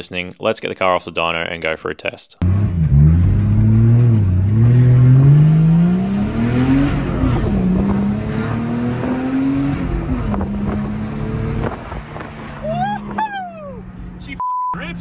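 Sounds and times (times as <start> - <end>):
car engine accelerating through gears: 2.4 - 14.2.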